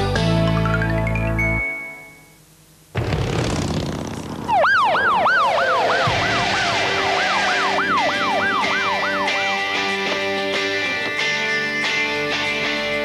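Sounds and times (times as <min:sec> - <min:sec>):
car engine and road noise: 0:02.9 - 0:13.0
police siren yelping: 0:04.5 - 0:10.2.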